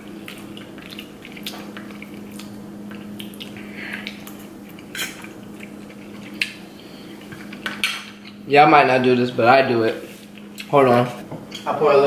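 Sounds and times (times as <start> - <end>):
wet chewing: 0.0 - 8.4
forks tapping on plates: 7.4 - 8.3.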